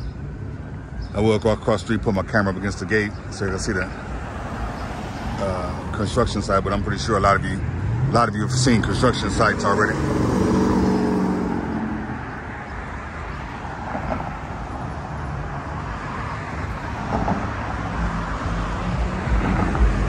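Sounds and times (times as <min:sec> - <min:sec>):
road traffic noise: 0:00.0 - 0:20.0
car passing by: 0:03.9 - 0:06.0, 0:07.2 - 0:20.0.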